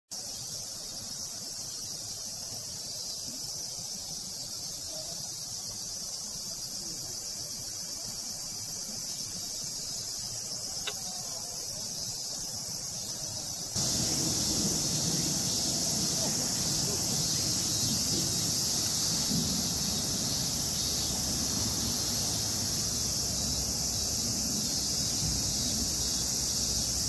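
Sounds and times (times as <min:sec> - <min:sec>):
insects shrilling: 0:00.2 - 0:27.0
faint click: 0:10.8 - 0:11.1.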